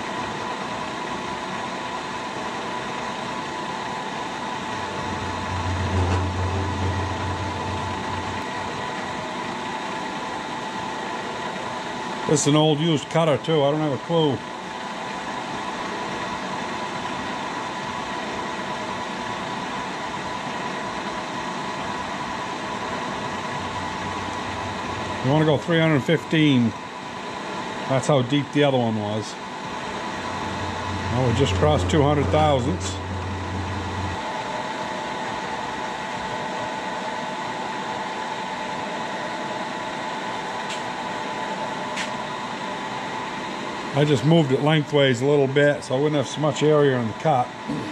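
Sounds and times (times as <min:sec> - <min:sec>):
milling machine humming: 0:00.0 - 0:13.2, 0:14.4 - 0:44.6
low hum: 0:04.7 - 0:09.3, 0:22.8 - 0:25.6, 0:29.7 - 0:35.6
milling machine cutting steel: 0:04.8 - 0:09.2, 0:29.9 - 0:34.4.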